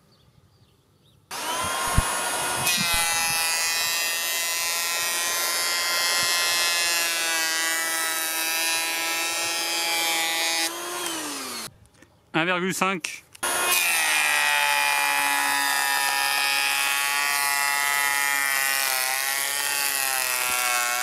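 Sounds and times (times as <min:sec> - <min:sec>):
electric planer whining: 0:01.3 - 0:11.7, 0:13.4 - 0:21.0
rasp of wood shavings: 0:01.3 - 0:11.7.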